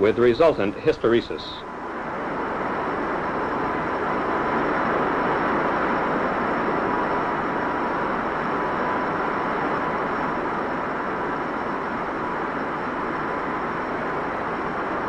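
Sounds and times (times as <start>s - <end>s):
fan rushing noise with thin whine: 0.0s - 15.0s.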